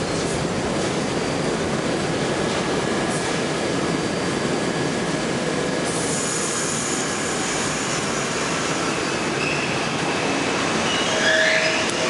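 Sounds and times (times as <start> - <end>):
subway train rumbling on track: 0.0 - 12.0
high-pitched wheel squeal: 9.0 - 12.0.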